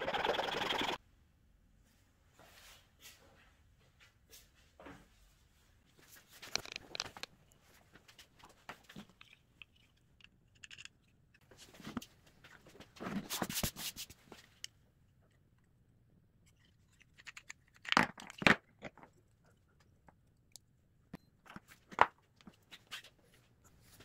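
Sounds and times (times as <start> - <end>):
wooden parts clicking and knocking: 6.4 - 7.6, 8.9 - 11.5, 16.4 - 21.2.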